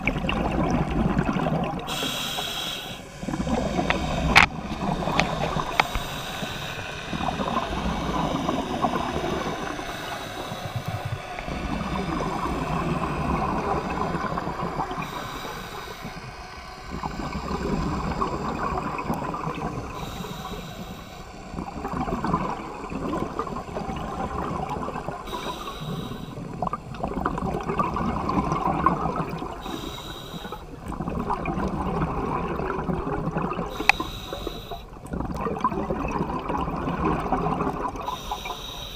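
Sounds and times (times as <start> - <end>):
gurgling exhaled bubbles: 0.0 - 2.4, 3.0 - 38.6
regulator inhale hiss: 1.9 - 21.6, 25.2 - 26.5, 29.5 - 30.8, 33.7 - 35.0, 38.0 - 38.9.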